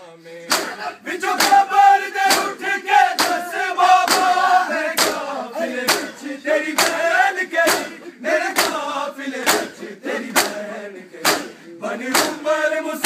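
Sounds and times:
men chanting a lament: 0:00.0 - 0:13.0
hands slapping chests: 0:00.5 - 0:00.8, 0:01.4 - 0:01.7, 0:02.3 - 0:06.2, 0:06.8 - 0:07.0, 0:07.6 - 0:08.8, 0:09.4 - 0:10.6, 0:11.2 - 0:12.4.

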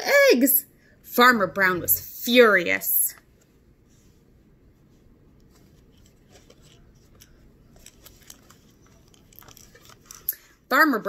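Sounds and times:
low room hum: 0:00.0 - 0:11.0
book pages rustling and turning: 0:04.8 - 0:10.4.

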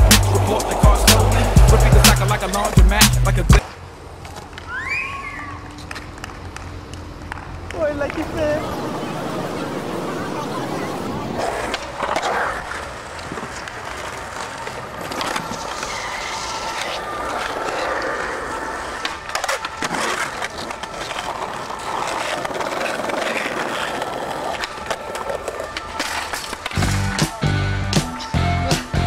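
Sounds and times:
skateboard wheels rolling on pavement: 0:00.0 - 0:29.0
skateboard clacks: 0:05.7 - 0:08.4, 0:11.4 - 0:29.0.

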